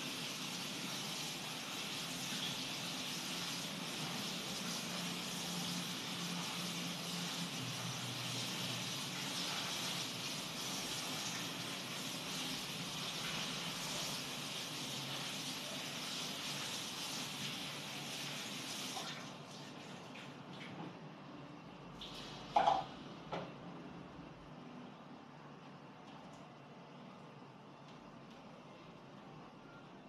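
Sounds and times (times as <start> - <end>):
tap running into a sink: 22.0 - 23.5.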